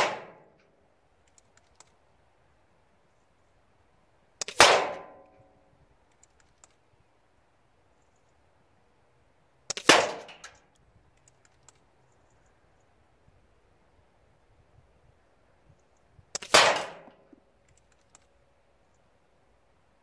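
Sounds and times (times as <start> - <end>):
air rifle shots: 0.0 - 0.5, 4.4 - 5.2, 9.7 - 10.5, 16.4 - 17.2
faint clicks: 0.6 - 2.1, 5.3 - 6.9, 10.4 - 13.0, 15.7 - 16.5, 17.1 - 19.1.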